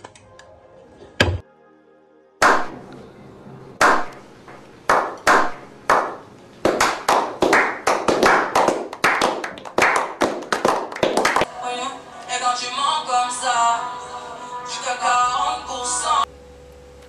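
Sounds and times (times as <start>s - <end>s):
slow hand claps into applause: 4.9s - 11.5s.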